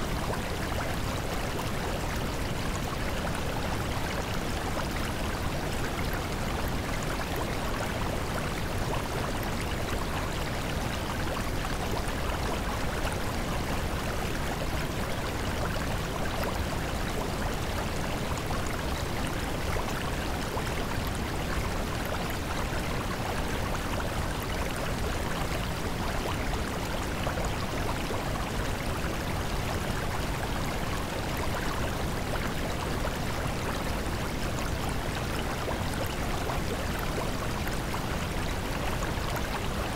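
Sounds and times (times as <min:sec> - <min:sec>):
flowing water rushing: 0:00.0 - 0:39.9.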